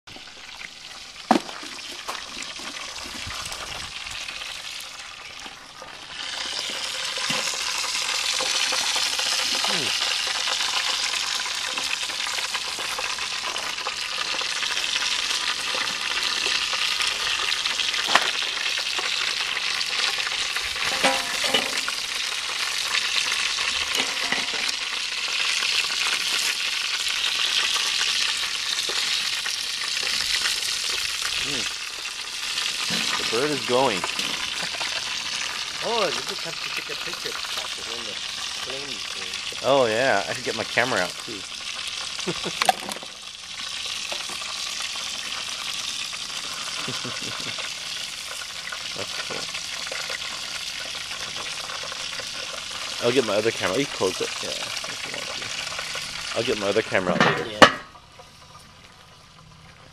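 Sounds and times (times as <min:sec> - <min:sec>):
meat sizzling over fire: 0:00.1 - 0:59.9.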